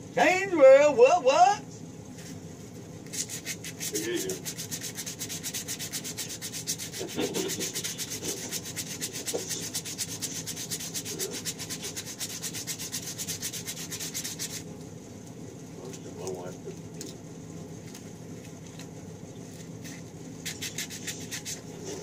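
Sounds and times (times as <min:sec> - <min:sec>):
scratchy hand sanding strokes: 0:03.1 - 0:14.6, 0:19.8 - 0:22.0.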